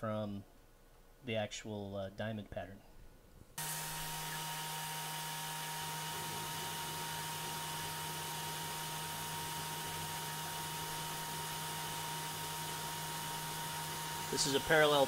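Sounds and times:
milling machine spindle whine: 3.6 - 15.0.

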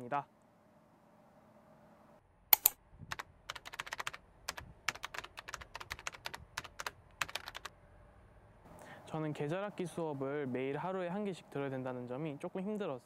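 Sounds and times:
keyboard typing: 2.6 - 7.7.

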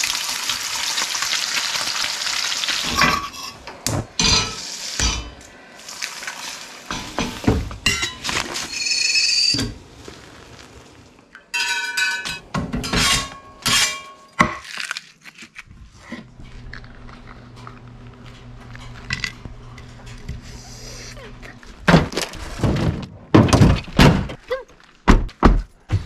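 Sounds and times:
dishes and utensils clattering: 2.8 - 5.4, 6.9 - 9.8, 11.5 - 14.4.

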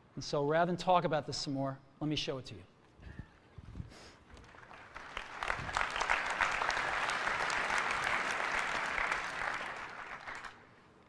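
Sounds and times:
audience applauding: 4.3 - 10.8.

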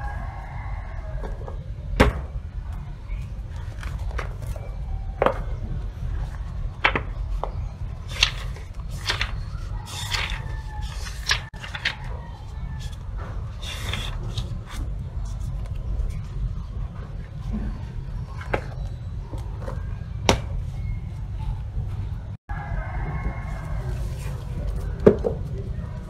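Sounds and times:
book pages turning: 8.0 - 16.4.

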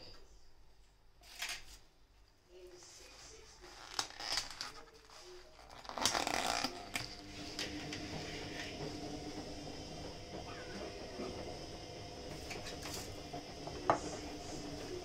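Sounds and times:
thin plastic crackling and clicking: 3.8 - 7.2.

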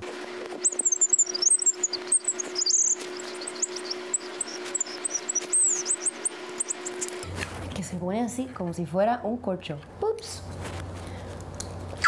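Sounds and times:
high chirping squeaks: 0.6 - 7.2
low hum: 0.6 - 7.3.

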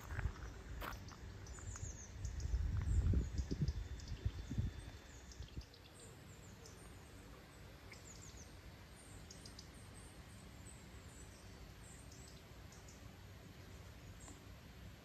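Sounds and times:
small birds chirping: 0.0 - 14.9
low background rumble: 0.0 - 15.0.

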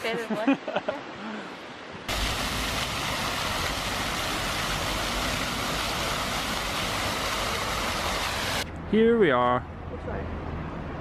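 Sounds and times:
fountain water splashing: 2.0 - 8.6.

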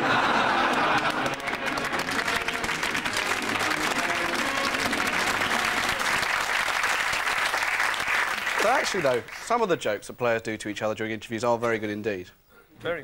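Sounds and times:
audience applauding: 0.0 - 9.7.

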